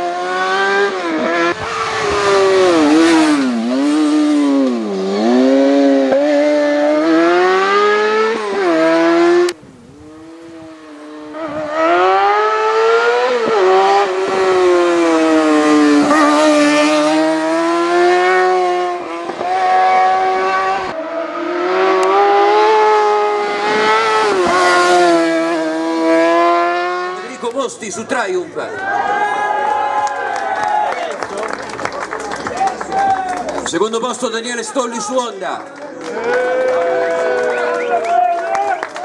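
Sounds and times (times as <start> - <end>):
motorcycle engine revving: 0.0 - 27.4.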